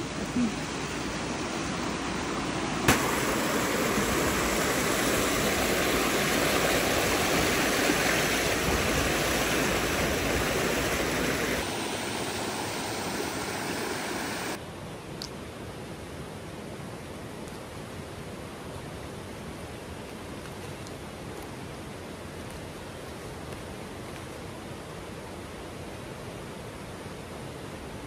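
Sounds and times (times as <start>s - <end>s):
creek water rushing: 0.0s - 14.6s.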